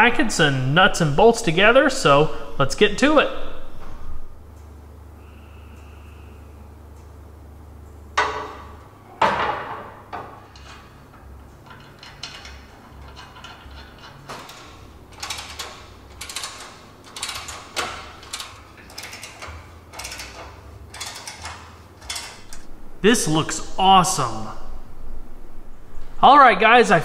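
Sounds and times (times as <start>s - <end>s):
wrench clicking on bolts: 11.6s - 22.7s.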